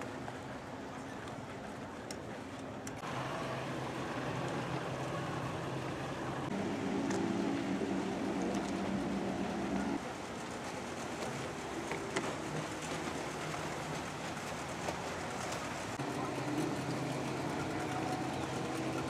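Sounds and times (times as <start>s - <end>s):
outboard boat motors humming: 0.0s - 19.0s
water noise: 0.0s - 19.0s
low engine drone: 2.8s - 19.0s.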